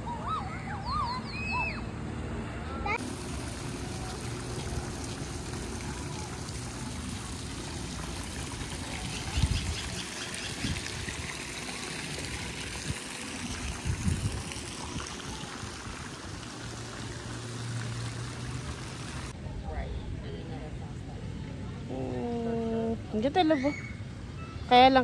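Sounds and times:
fountain water splashing: 3.0s - 19.4s.

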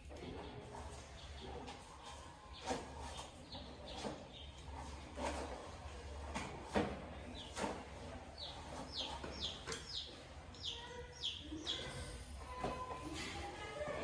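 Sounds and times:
small bird chirping: 8.4s - 12.2s.

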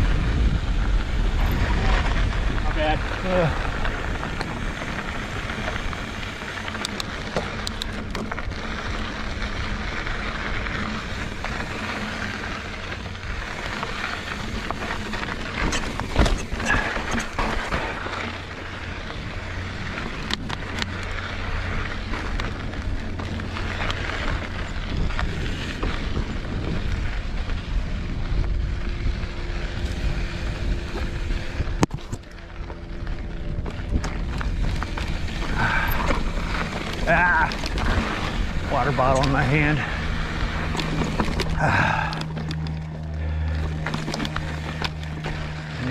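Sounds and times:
bike rattling and knocking: 0.0s - 45.9s
bike tyres and wind rushing: 0.0s - 45.9s.

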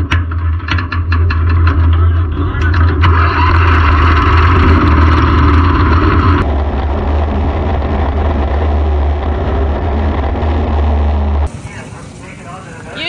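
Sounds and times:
race car engine idling: 0.7s - 13.0s
hiss: 11.5s - 13.0s.

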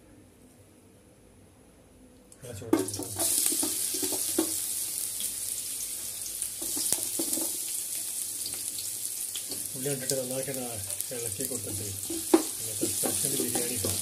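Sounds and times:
onions clattering into metal pot: 2.8s - 4.8s, 6.5s - 7.8s, 10.9s - 14.0s
onions sizzling: 2.8s - 14.0s.

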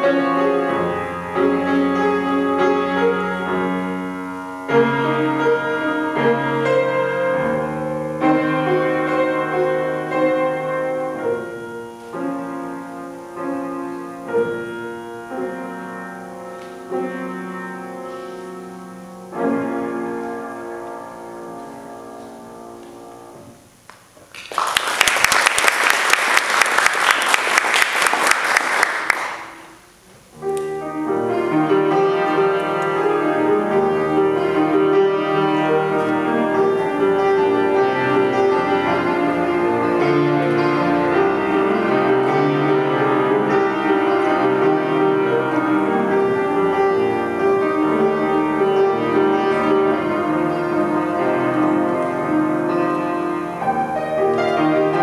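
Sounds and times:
grand piano playing: 0.0s - 55.0s
audience applause: 24.2s - 29.8s.

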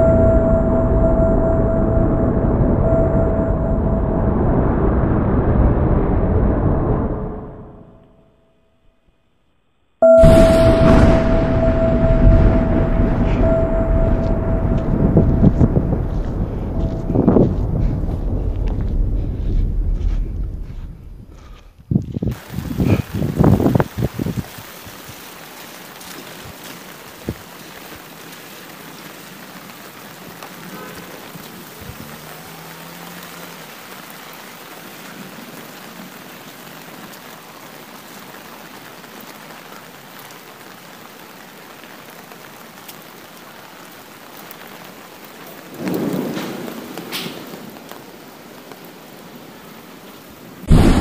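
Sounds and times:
thunder rolling: 0.0s - 8.0s, 10.0s - 25.2s, 45.6s - 48.9s, 50.5s - 51.0s
steady rain: 0.0s - 8.2s, 10.0s - 51.0s.

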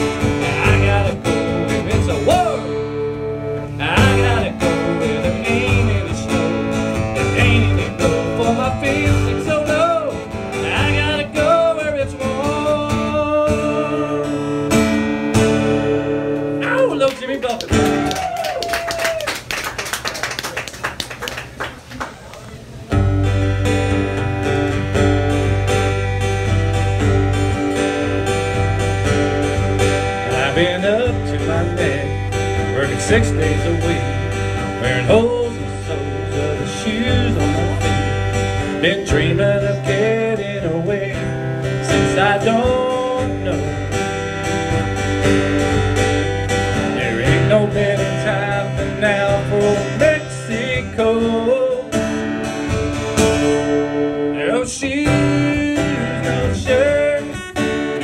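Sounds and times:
live band guitar: 0.0s - 58.0s
held low bass notes: 22.9s - 57.1s.

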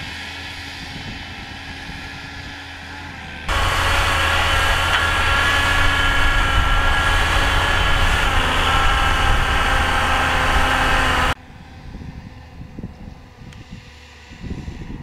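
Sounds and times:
tractor diesel engine rumbling: 2.9s - 11.4s.

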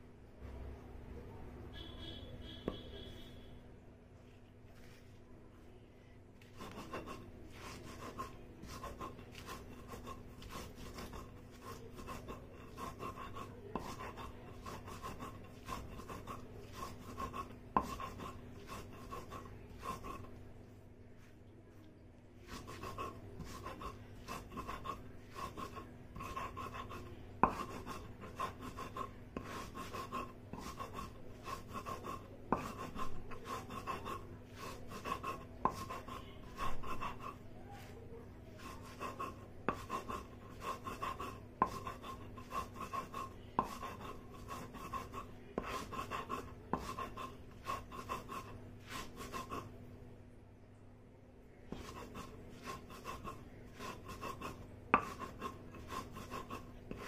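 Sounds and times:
stone-on-stone grinding strokes: 6.6s - 20.3s, 22.5s - 37.4s, 38.6s - 49.7s, 51.7s - 57.0s.

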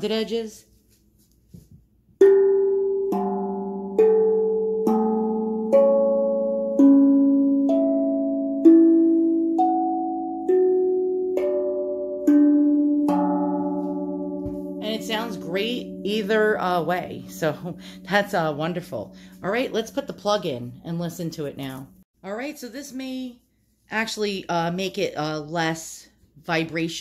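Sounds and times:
tongue drum bell-like notes: 2.2s - 21.3s.

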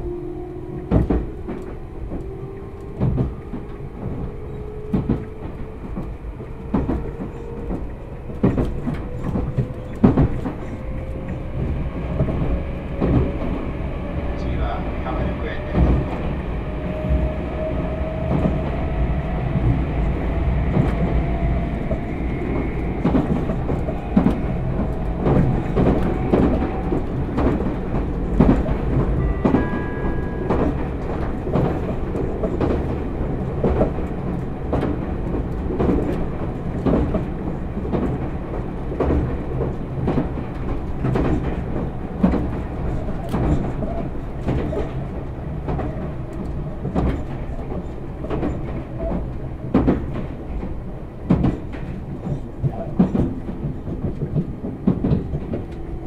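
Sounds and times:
train wheels rumbling on rails: 0.0s - 56.0s
clatter over rail joints: 23.0s - 56.0s.

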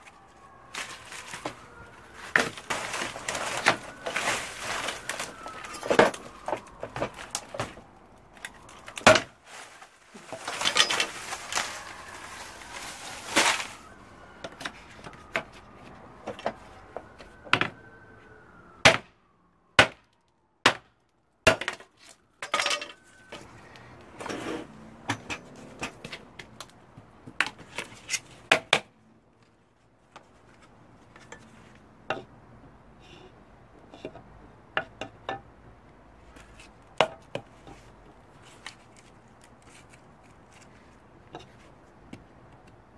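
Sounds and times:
dry stems cracking and snapping: 0.0s - 17.8s, 38.3s - 40.8s
knife rasping through dry fronds: 0.7s - 5.8s, 8.8s - 13.9s, 38.4s - 40.8s.

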